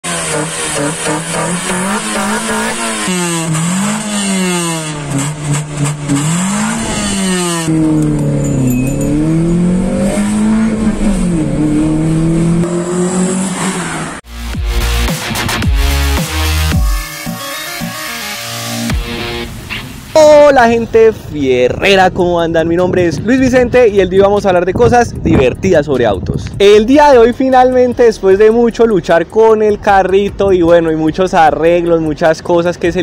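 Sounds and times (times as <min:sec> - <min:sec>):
car engine revving: 0:00.0 - 0:17.9.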